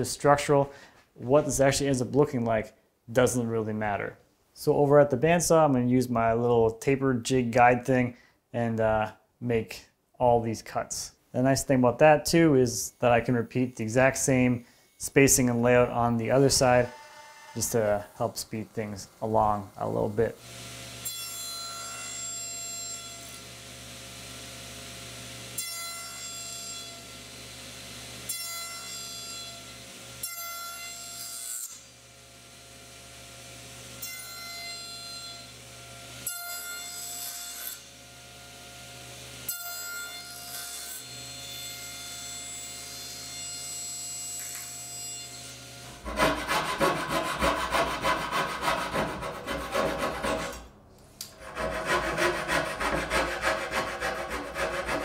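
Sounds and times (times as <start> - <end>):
bandsaw running: 45.8 - 55.0
hand saw rasping through wood: 45.9 - 55.0.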